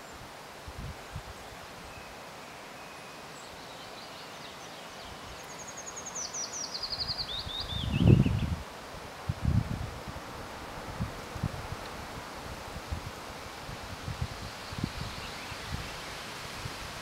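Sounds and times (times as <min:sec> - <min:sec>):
wind rumbling on microphone: 0:00.6 - 0:01.4, 0:06.9 - 0:17.0.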